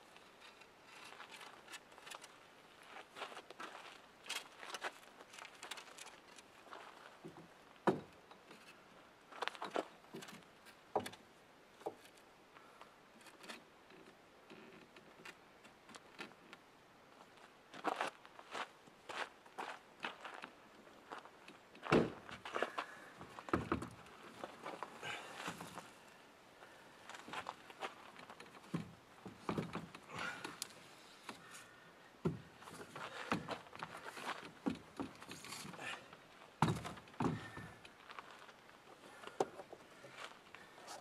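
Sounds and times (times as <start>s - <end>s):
wooden poles clicking and knocking: 3.2s - 8.8s, 9.4s - 12.2s, 21.5s - 25.9s, 27.2s - 31.6s, 32.2s - 38.6s, 39.2s - 41.0s.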